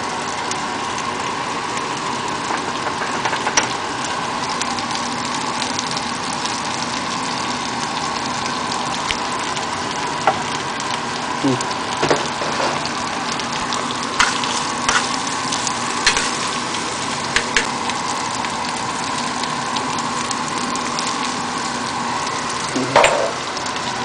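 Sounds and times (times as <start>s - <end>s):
shrimp sizzling in oil: 0.0s - 24.0s
spoon scraping a pan: 14.2s - 15.2s, 16.0s - 16.5s.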